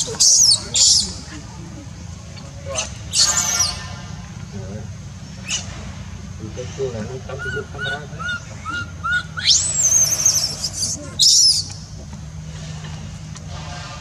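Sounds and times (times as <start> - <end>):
baby monkey crying: 0.0 - 1.4, 5.4 - 5.8, 7.0 - 11.7
high chirping squeaks: 2.7 - 4.0, 7.4 - 11.9
shrill wavering scream: 7.4 - 11.6.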